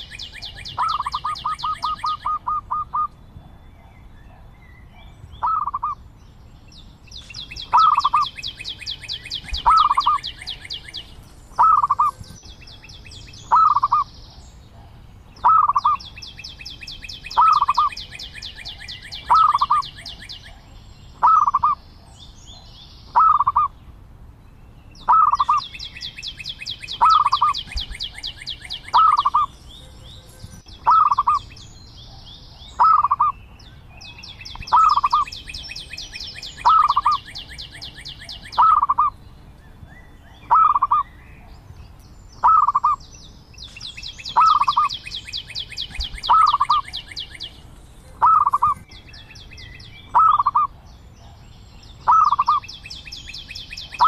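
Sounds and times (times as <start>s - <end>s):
dove cooing: 0.0s - 3.1s, 5.4s - 6.0s, 7.7s - 8.4s, 9.4s - 10.9s, 11.6s - 12.2s, 13.5s - 14.1s, 15.4s - 16.0s, 17.4s - 20.6s, 21.2s - 21.8s, 23.2s - 23.7s, 25.1s - 25.6s, 27.0s - 29.5s, 30.8s - 31.4s, 32.8s - 33.3s, 34.6s - 35.3s, 36.6s - 39.1s, 40.4s - 41.0s, 42.4s - 43.0s, 44.3s - 44.9s, 45.9s - 47.5s, 48.1s - 48.8s, 50.1s - 50.7s, 52.1s - 52.6s.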